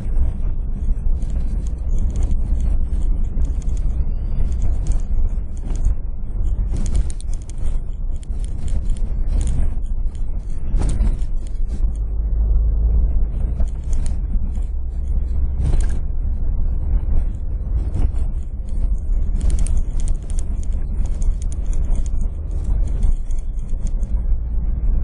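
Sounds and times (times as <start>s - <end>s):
engine and tyres rumbling: 0.0s - 25.0s.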